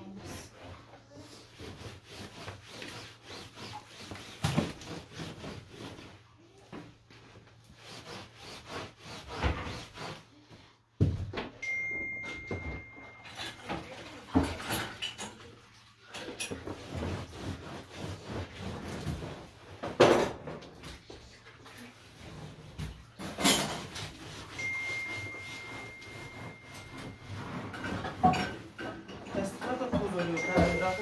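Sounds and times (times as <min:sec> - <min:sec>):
cloth rubbing and wiping: 0:00.1 - 0:06.6, 0:07.2 - 0:10.7, 0:16.5 - 0:19.8, 0:21.7 - 0:28.6, 0:30.4 - 0:31.0
thin high tone: 0:11.6 - 0:13.8, 0:24.4 - 0:28.0, 0:30.3 - 0:31.0.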